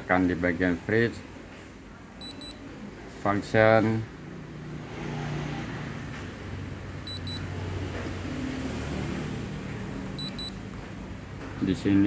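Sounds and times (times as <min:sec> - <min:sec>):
refrigerator panel beeping: 0:07.0 - 0:07.5, 0:10.2 - 0:10.6.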